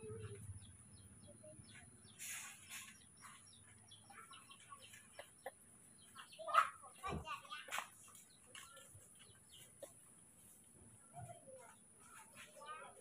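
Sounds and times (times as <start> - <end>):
birds chirping: 0.0 - 13.0
soft rustle: 2.1 - 3.8, 7.8 - 13.0.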